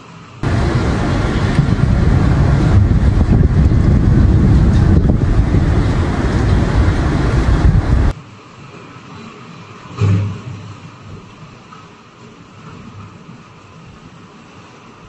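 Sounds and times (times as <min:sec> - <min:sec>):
wind buffeting microphone: 0:00.4 - 0:08.2.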